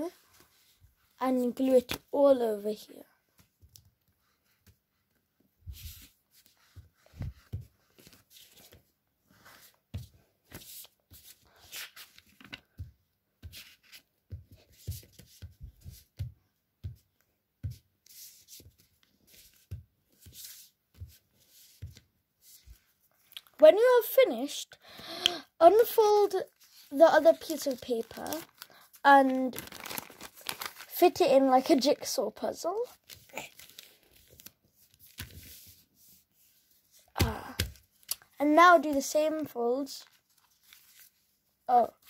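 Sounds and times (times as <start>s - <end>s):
paper rustling: 5.6s - 12.8s, 25.8s - 32.0s, 32.8s - 35.9s, 40.0s - 41.3s.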